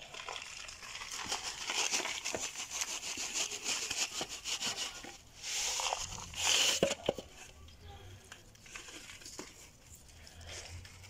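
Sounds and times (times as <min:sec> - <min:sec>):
cup scraping dry soil: 0:00.0 - 0:07.5.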